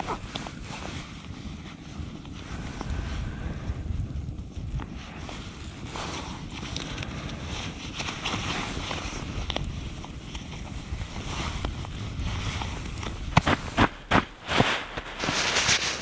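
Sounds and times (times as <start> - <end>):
campfire crackling: 0.0 - 16.0
wind buffeting microphone: 0.0 - 16.0
clothing rustling: 5.4 - 16.0.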